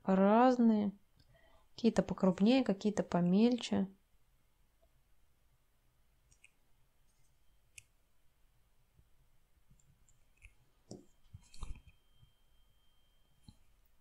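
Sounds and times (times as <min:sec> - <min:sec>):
faint brush clicks and taps: 0:06.3 - 0:07.9, 0:09.7 - 0:12.0.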